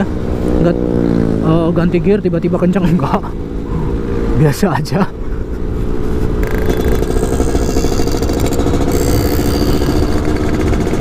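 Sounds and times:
two-stroke engine running: 0:00.0 - 0:11.0.

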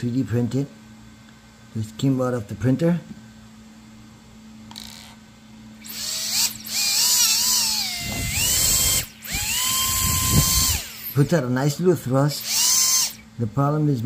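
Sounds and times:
electric ducted fan whining: 0:00.0 - 0:14.0.

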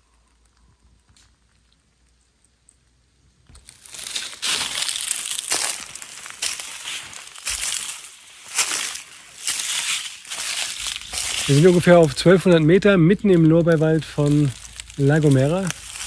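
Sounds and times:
footsteps crunching dry leaves: 0:03.5 - 0:16.0.

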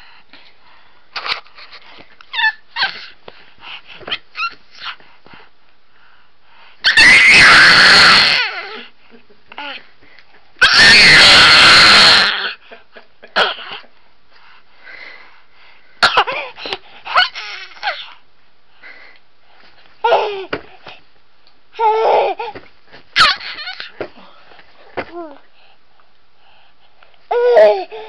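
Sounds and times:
baby squealing: 0:02.3 - 0:03.1, 0:04.1 - 0:05.0, 0:06.8 - 0:08.8, 0:10.6 - 0:12.6, 0:17.1 - 0:18.1, 0:23.2 - 0:23.9.

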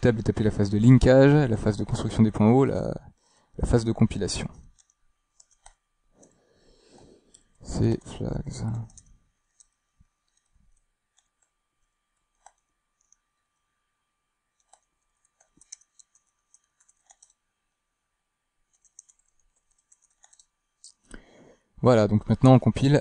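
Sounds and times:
keyboard keystrokes: 0:18.7 - 0:20.5.

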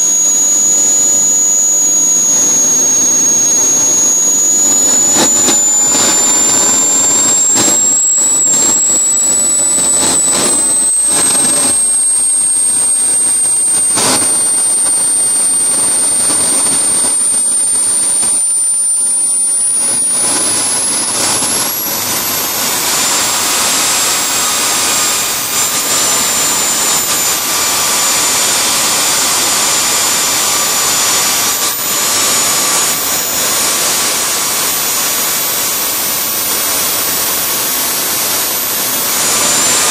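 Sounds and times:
brief crackles: 0:00.0 - 0:22.5
turbojet engine roar and whine: 0:00.0 - 0:39.9.

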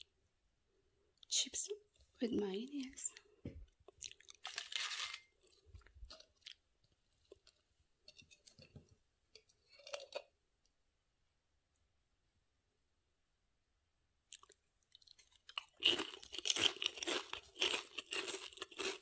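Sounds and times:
potato chips crunching: 0:03.8 - 0:07.6, 0:14.3 - 0:19.0.

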